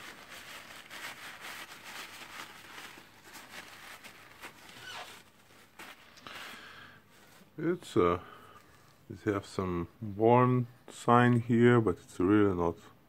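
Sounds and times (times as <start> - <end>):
paper towel rustling and rubbing: 0.0 - 7.6.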